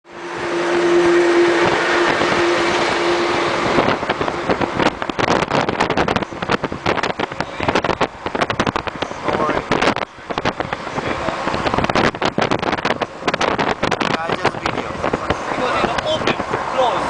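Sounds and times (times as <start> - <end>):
engine hum: 0.0 - 17.0
road traffic rush: 0.0 - 17.0.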